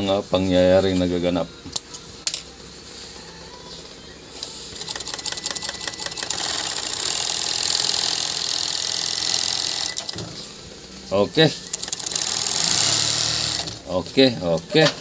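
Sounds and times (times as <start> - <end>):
sewing machine ticking and buzzing: 4.8 - 10.2, 11.6 - 13.8.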